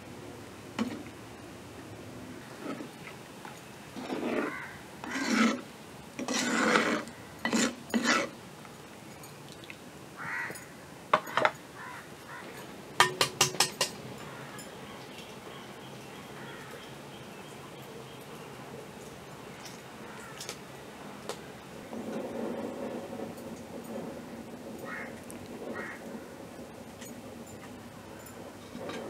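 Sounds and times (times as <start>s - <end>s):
utensils scraping cookware: 4.0s - 8.4s, 28.6s - 29.0s
sharp knocks on cookware: 13.0s - 14.0s
ringing clinks: 27.0s - 29.0s.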